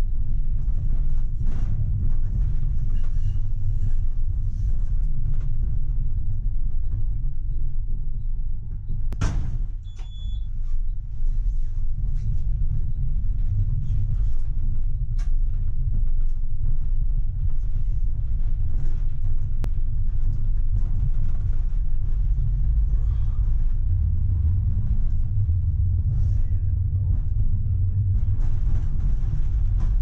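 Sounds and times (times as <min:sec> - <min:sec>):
tram rumbling: 0:00.0 - 0:30.0.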